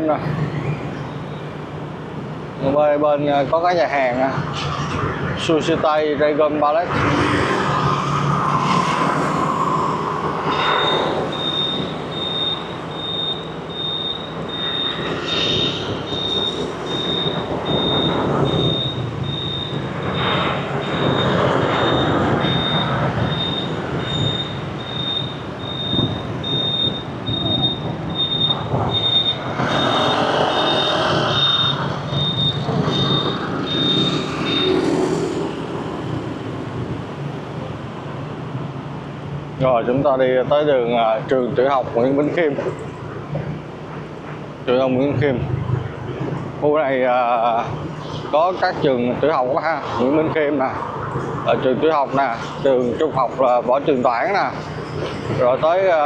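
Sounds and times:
city street traffic passing: 0.0s - 56.0s
high electronic beeps: 7.6s - 35.4s.

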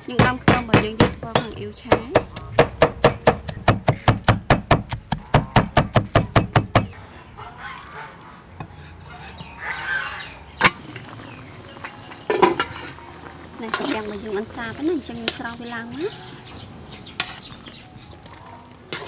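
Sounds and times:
cleaver chopping on wooden board: 0.2s - 6.9s.

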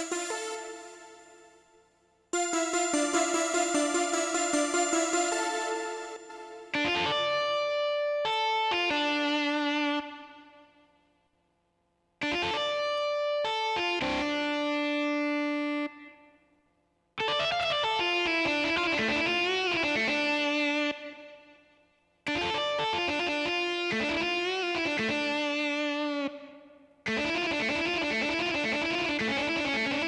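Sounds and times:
keyboard electric guitar voice: 22.3s - 30.0s.

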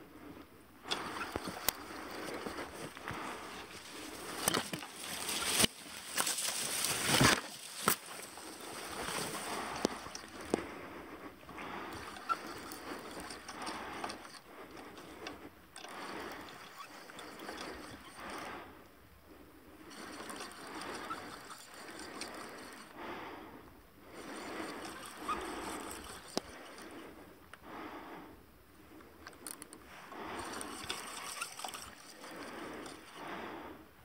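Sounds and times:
water sloshing and splashing: 0.8s - 10.8s.

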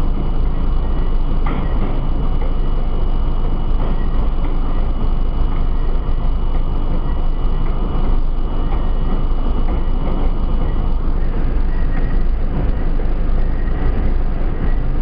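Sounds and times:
subway train wheels rumbling on rail: 0.0s - 15.0s
clicks of train wheels: 3.8s - 15.0s.

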